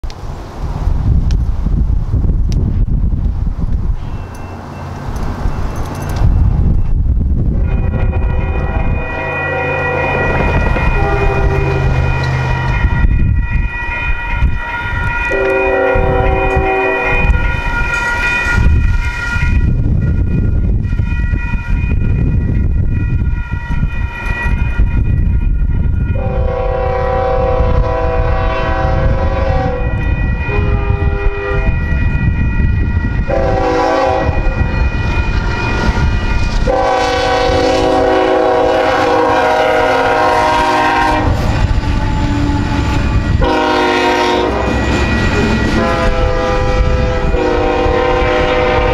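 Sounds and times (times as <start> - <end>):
train rumble: 0.0 - 48.9
crossing warning bells ringing: 3.8 - 48.9
train horn blasts: 7.5 - 13.2, 14.0 - 20.3, 25.3 - 32.3, 33.0 - 48.9.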